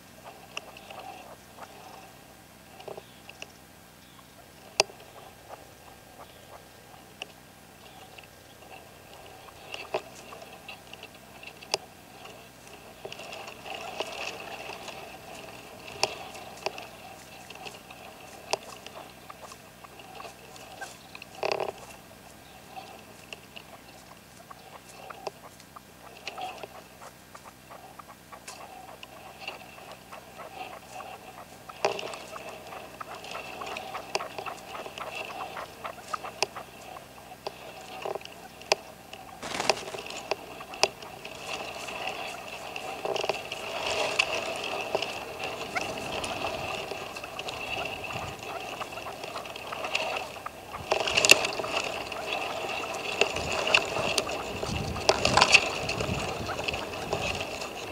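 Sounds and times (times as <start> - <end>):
partridges clucking calls: 13.2 - 38.6, 39.3 - 57.9.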